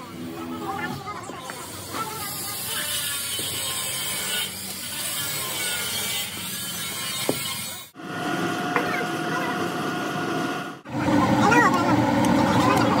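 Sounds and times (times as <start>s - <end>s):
workshop machinery running: 0.0s - 13.0s.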